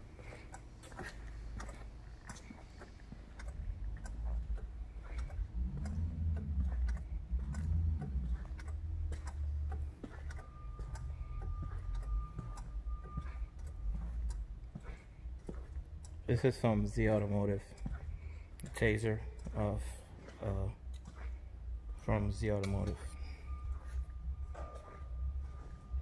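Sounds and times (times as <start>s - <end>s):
thin steady tone: 0.0s - 26.0s
turn signal flasher ticking: 0.0s - 26.0s
low rumble: 3.5s - 16.2s.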